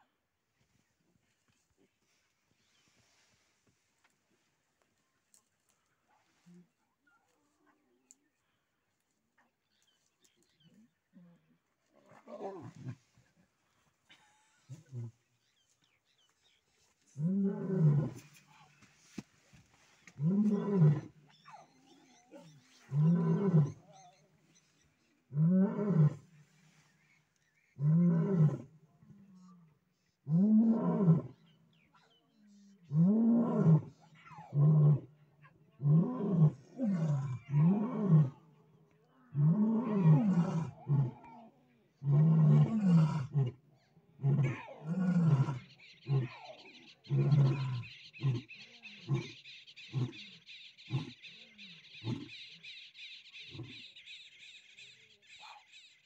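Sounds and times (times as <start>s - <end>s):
lions roaring: 42.0s - 43.6s, 47.0s - 49.3s.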